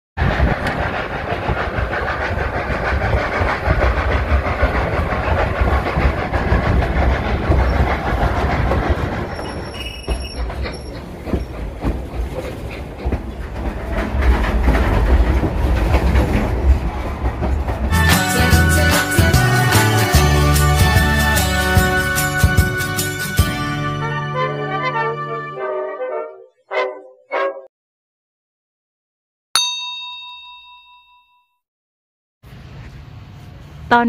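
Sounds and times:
steam train rumbling along track: 0.2 - 25.3.

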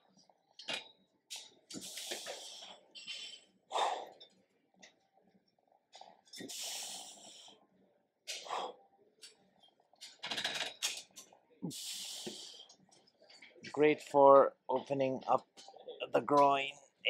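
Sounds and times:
man breathing out heavily: 1.8 - 4.2.

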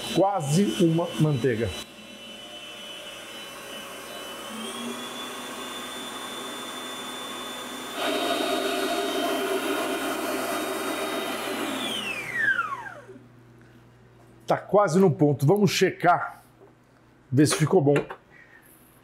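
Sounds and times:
stand mixer whisk whining: 0.0 - 13.2.

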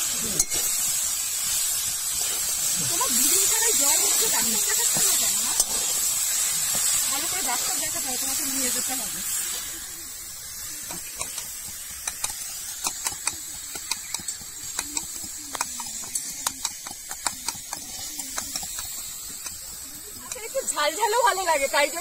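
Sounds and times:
metal utensils clinking: 0.0 - 1.0, 2.1 - 9.0
food sizzling in a wok: 0.0 - 22.0.

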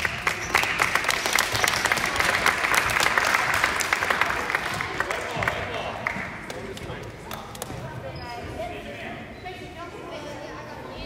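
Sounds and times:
spectators applauding: 0.0 - 6.9.

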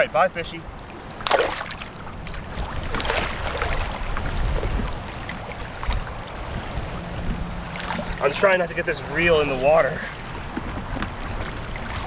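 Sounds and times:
seawater sloshing around legs: 0.7 - 12.0
short splashes: 0.8 - 12.0.

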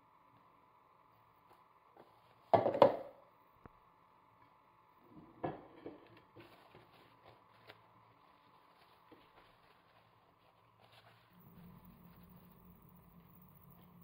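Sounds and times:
dishes knocking on countertop: 2.5 - 3.1
paper napkins rustling: 6.2 - 13.0.

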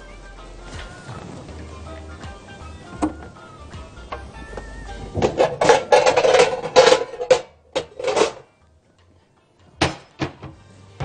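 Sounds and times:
cookware clattering: 5.1 - 8.5.

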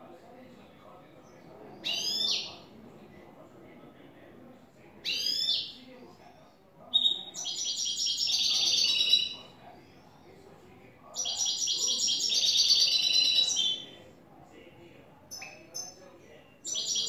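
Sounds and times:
goldfinch singing: 16.6 - 17.0.

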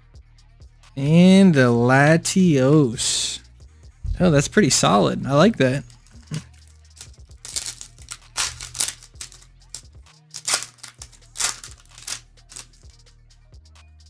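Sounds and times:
quiet background music: 0.0 - 14.0
foil pack ripping and crinkling: 6.0 - 12.9.

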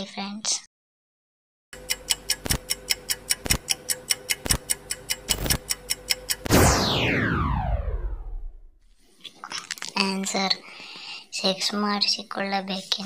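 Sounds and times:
clock ticking rapidly: 1.8 - 6.5
loud sound falling in pitch: 6.5 - 8.7.

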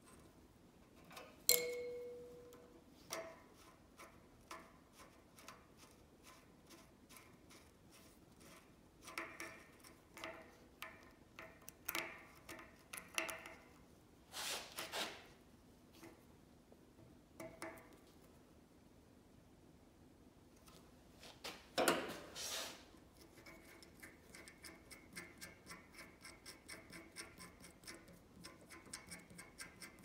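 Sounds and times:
steel pick clicking on metal: 1.5 - 3.3.

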